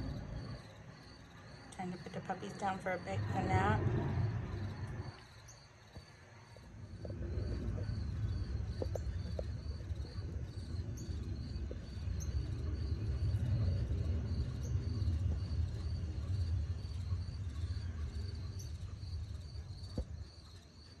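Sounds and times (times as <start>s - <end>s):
low rumble: 2.6s - 5.6s, 6.8s - 19.4s
insect chirping pulse: 4.1s - 21.0s.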